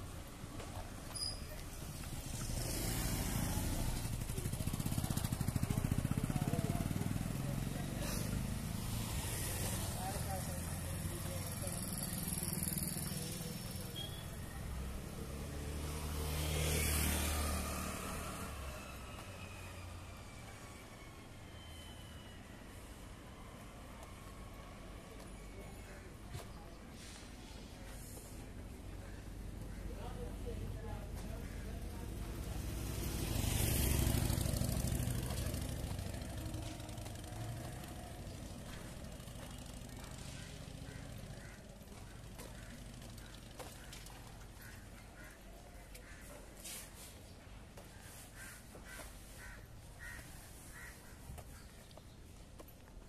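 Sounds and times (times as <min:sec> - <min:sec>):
street traffic: 0:00.0 - 0:53.0
vehicle passing close: 0:01.8 - 0:13.9, 0:14.6 - 0:20.0, 0:31.7 - 0:41.5.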